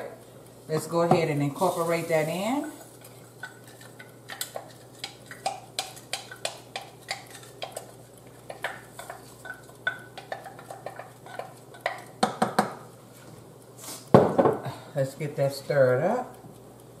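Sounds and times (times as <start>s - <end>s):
spoon tapping and scraping cup: 3.4s - 12.8s.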